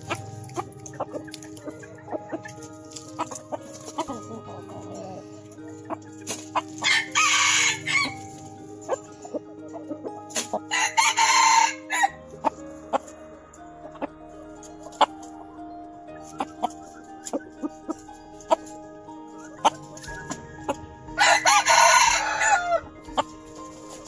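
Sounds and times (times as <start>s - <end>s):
chicken clucking: 0.0s - 11.6s, 16.2s - 24.0s
rooster crowing: 6.8s - 8.2s, 10.7s - 12.2s, 20.3s - 22.9s.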